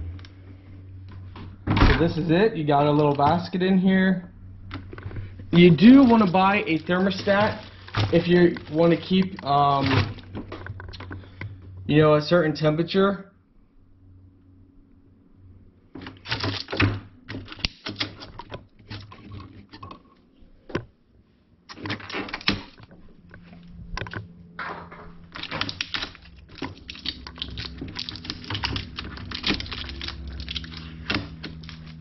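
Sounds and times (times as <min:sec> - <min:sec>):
tape peeling off plastic: 0:05.6 - 0:10.4, 0:16.1 - 0:19.3, 0:21.7 - 0:22.8, 0:25.2 - 0:32.0.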